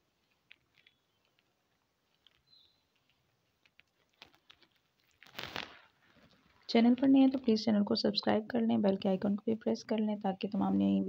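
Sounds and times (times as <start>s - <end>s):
cloth rustling: 0.1s - 7.6s.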